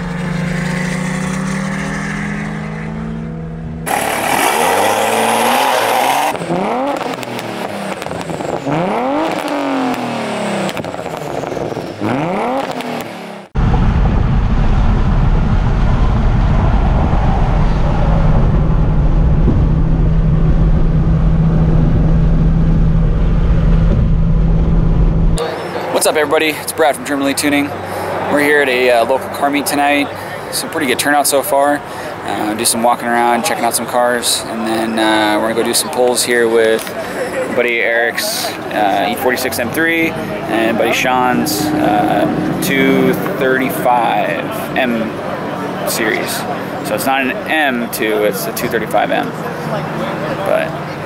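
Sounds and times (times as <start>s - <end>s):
car engines running: 0.0s - 51.0s
deep engine drone inside car: 13.5s - 25.4s
rising and falling sweeps: 13.6s - 26.3s.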